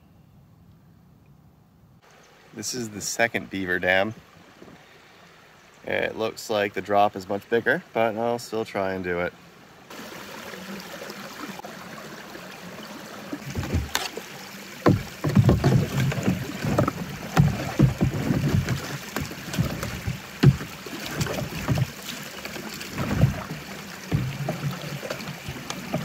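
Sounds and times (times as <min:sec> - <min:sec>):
paddle strokes and splashes: 0:09.9 - 0:26.0
water rushing through dam: 0:09.9 - 0:26.0
paddle knocking on hull: 0:13.4 - 0:14.2, 0:14.8 - 0:26.0.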